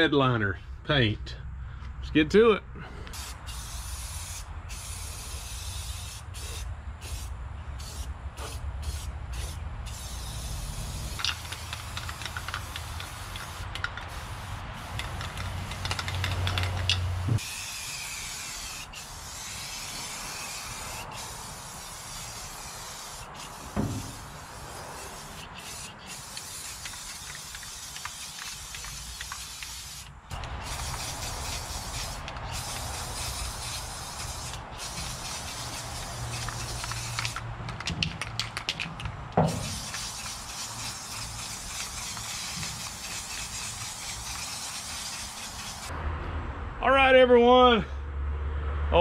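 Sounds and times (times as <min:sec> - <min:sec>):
aerosol spray can hissing: 0:03.1 - 0:37.4, 0:39.4 - 0:45.9.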